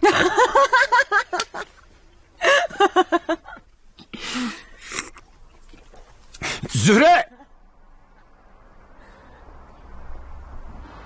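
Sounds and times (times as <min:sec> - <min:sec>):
person laughing: 0:00.0 - 0:01.7
breathy sigh: 0:04.1 - 0:04.9.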